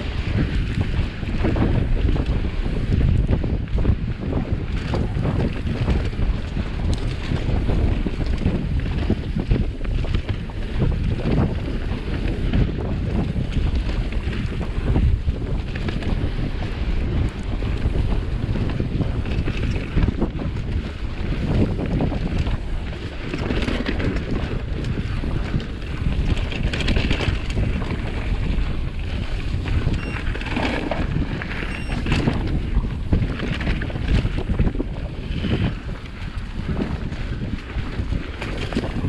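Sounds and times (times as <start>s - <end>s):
bike tyres rolling over dry leaves: 0.0s - 39.0s
wind buffeting microphone: 0.0s - 39.0s.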